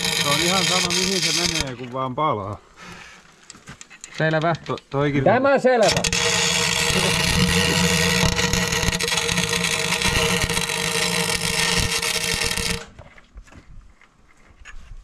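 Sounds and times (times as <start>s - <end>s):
welder arc crackling and hissing: 0.0s - 1.7s, 5.8s - 13.0s.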